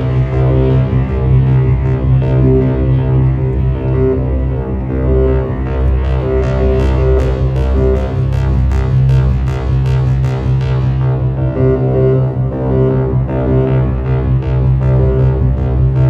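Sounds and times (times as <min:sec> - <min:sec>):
deep synthesizer bass drone: 0:00.0 - 0:16.0
pulsed synthesizer notes: 0:00.0 - 0:16.0.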